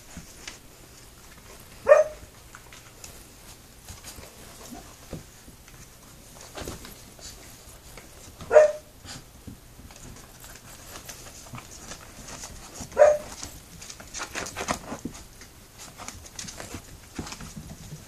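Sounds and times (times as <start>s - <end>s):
puppies yipping: 12.9s - 13.4s.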